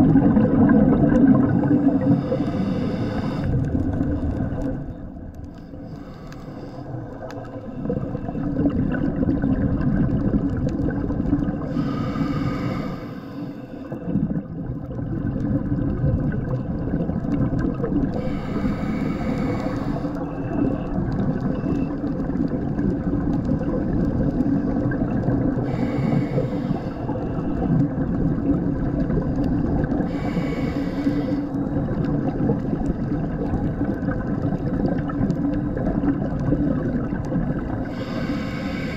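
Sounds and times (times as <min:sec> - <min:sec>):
steady low rumble: 0:00.0 - 0:09.6
regulator exhaust bubbles hissing: 0:00.0 - 0:38.9.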